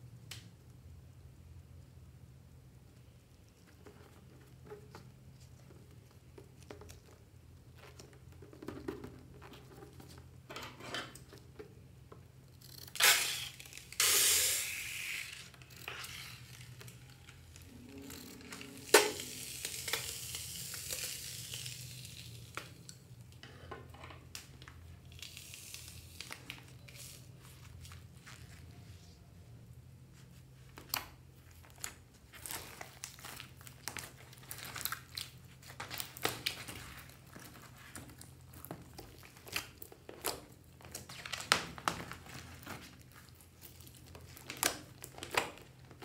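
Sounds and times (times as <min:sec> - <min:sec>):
foam hissing from a balloon: 0:13.0 - 0:15.5.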